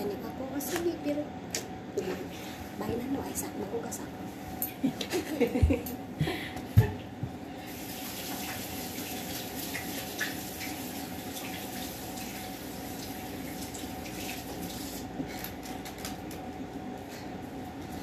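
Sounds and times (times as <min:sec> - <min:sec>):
tap water running into sink: 0:07.7 - 0:15.1.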